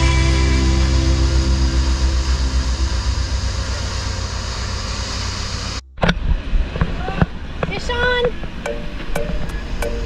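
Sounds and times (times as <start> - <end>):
boat diesel engines droning: 0.0 - 10.0.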